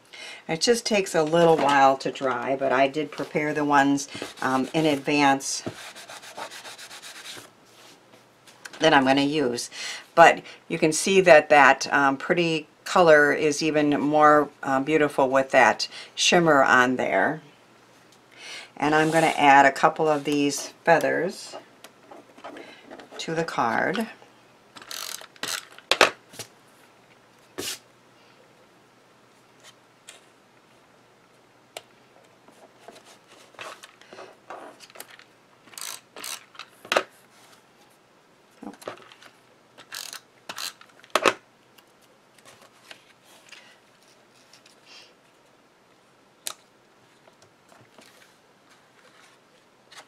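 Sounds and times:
tape runner ratcheting: 24.8 - 25.8, 35.7 - 36.6, 39.8 - 40.9.

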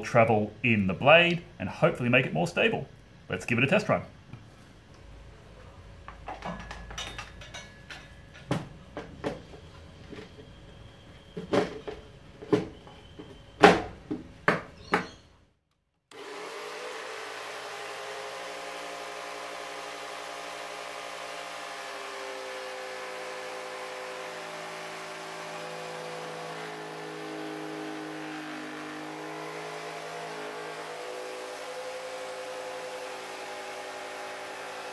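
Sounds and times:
knocks and clatter of fitting: 6.1 - 9.5
jigsaw cutting wood: 16.1 - 34.9.

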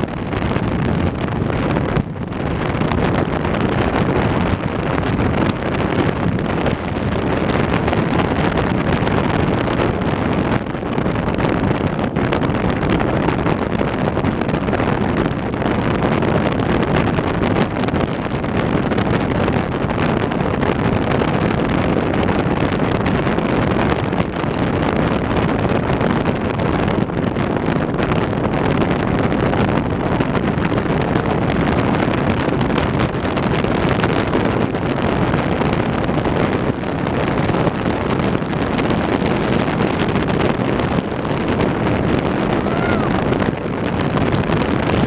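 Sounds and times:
wind buffeting microphone: 0.0 - 45.0.

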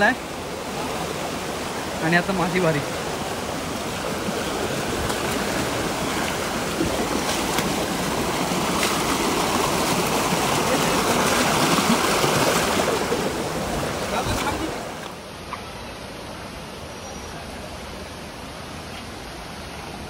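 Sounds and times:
stream rushing over boulders: 0.0 - 20.0.

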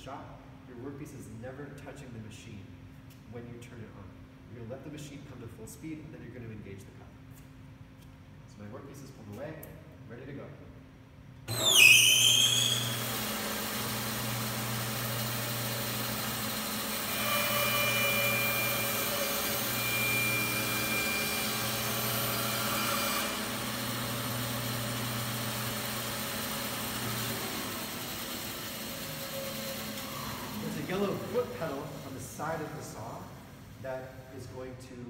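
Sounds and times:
bandsaw running: 11.5 - 33.4
bandsaw blade cutting a board: 15.0 - 31.6.

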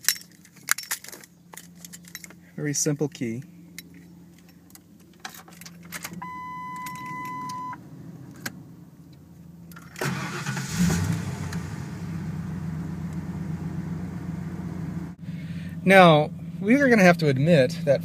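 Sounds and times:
car engine cranking and idling: 0.0 - 18.0
ignition key clicks: 4.7 - 10.6
warning beep: 6.2 - 7.8.

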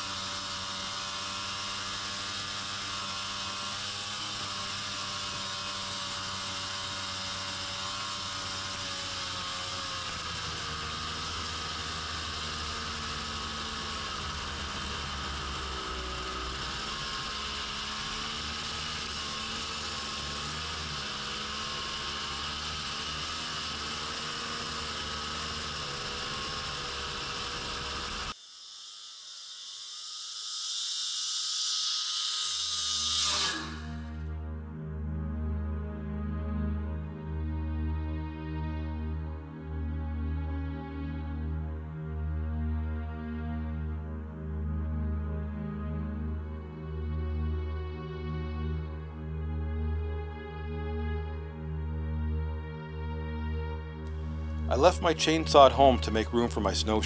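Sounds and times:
snowmobile engine running: 0.0 - 28.4, 54.1 - 57.0
distant snowmobile approaching: 0.0 - 30.0, 32.0 - 57.0
steady hiss: 10.0 - 34.2, 54.1 - 57.0.

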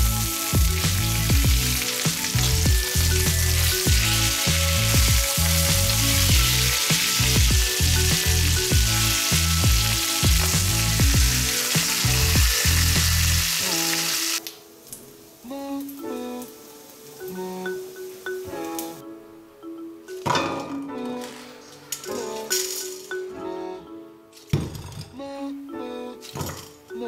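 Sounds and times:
music with steady beat: 0.0 - 13.6
pork sizzling in a pan: 0.0 - 14.4.

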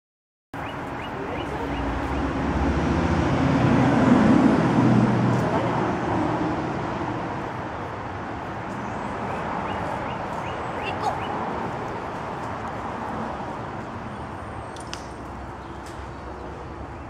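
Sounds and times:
vehicle passing on road: 0.6 - 17.0.

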